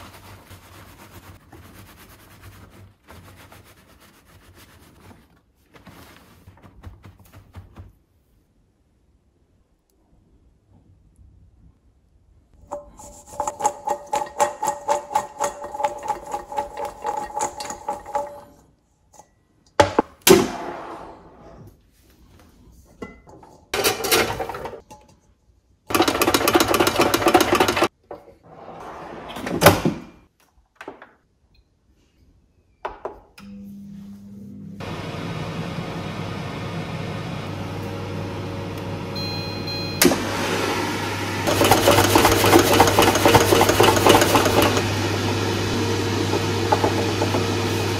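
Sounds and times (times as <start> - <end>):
fries rustling and clattering: 4.9 - 8.1, 41.5 - 44.9
spatula scraping metal bowl: 12.7 - 18.6.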